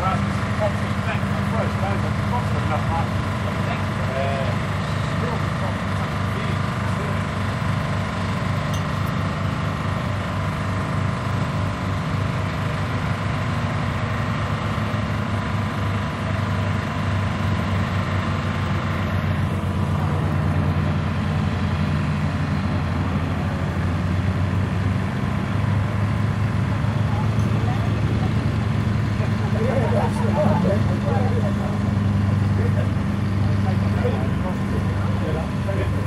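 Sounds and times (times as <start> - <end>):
aircraft engine drone: 0.0 - 36.0.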